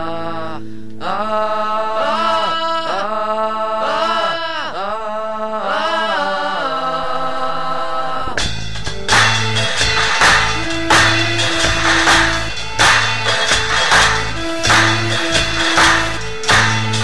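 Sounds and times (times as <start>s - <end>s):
slow sung song: 0.0s - 8.5s, 9.3s - 17.0s
held drone: 8.3s - 17.0s.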